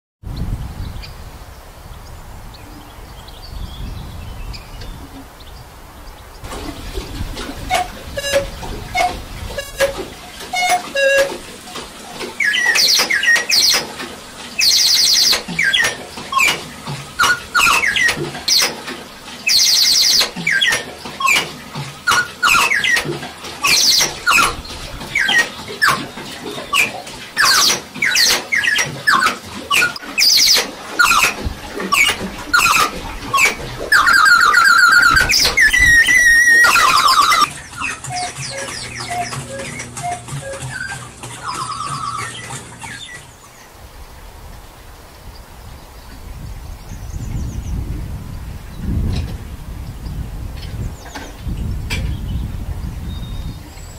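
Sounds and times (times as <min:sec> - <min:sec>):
mechanical clack: 0:06.4 - 0:43.3
bright cuckoo calls: 0:07.4 - 0:14.0, 0:14.6 - 0:16.6, 0:17.2 - 0:43.8
clock short pitched notes: 0:32.0 - 0:43.0
held rising tone: 0:32.0 - 0:43.3.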